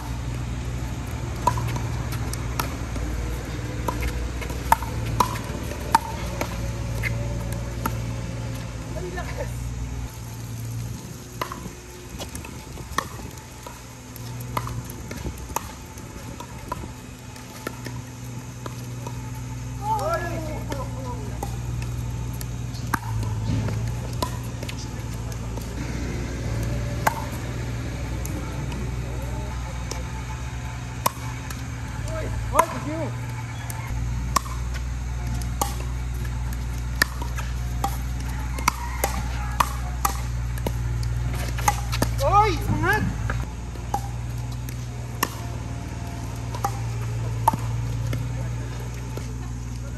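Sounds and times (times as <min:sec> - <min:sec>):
paddles hitting plastic ball: 0:00.0 - 0:25.9, 0:26.6 - 0:49.9
low steady hum: 0:00.0 - 0:49.9.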